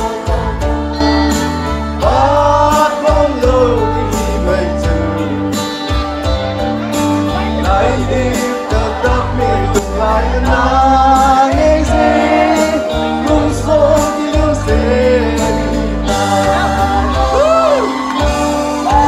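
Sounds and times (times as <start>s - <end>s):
instrumental backing with bass and drums: 0.0s - 19.0s
man singing into a microphone: 2.0s - 6.0s, 7.3s - 17.9s.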